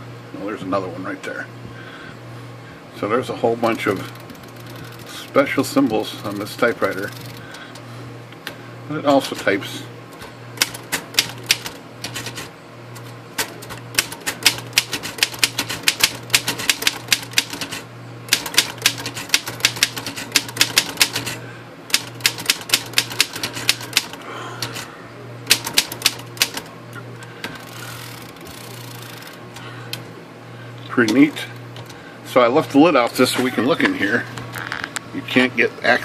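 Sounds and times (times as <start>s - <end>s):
manual typewriter keys clacking: 10.6s - 12.5s, 13.4s - 24.8s, 25.5s - 26.6s.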